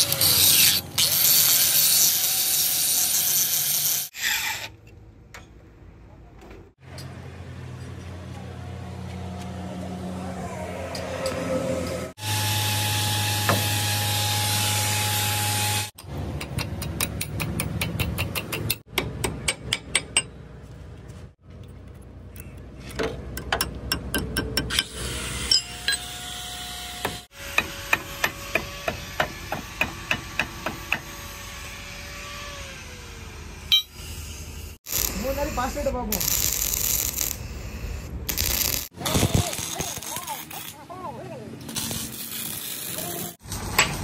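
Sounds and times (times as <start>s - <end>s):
hammer striking steel: 16.4s - 20.4s.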